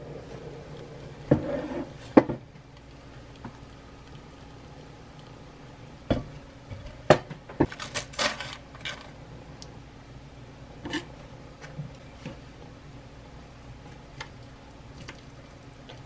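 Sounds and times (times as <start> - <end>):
foil crinkling: 7.7 - 9.1.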